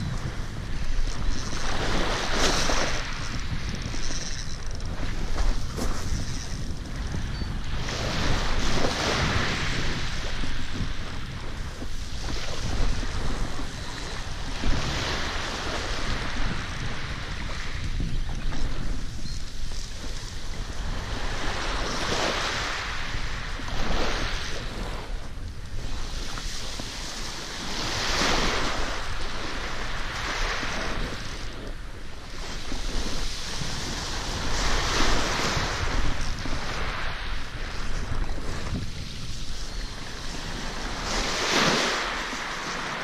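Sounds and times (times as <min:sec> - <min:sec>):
wind rumble on microphone: 0:00.0 - 0:43.0
waves washing on pebble beach: 0:07.7 - 0:17.8, 0:25.8 - 0:43.0.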